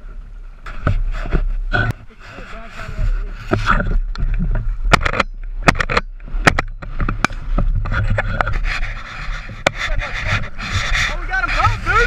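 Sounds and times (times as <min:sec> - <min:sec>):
clothing scraping against camera: 0:00.6 - 0:04.1, 0:07.0 - 0:12.0
sharp knocks and clicks: 0:03.5 - 0:08.7.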